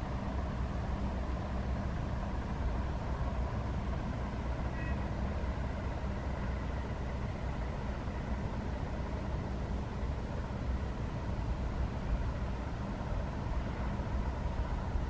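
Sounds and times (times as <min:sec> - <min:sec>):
low outdoor rumble: 0:00.0 - 0:15.0
faint short bird call: 0:04.7 - 0:05.2.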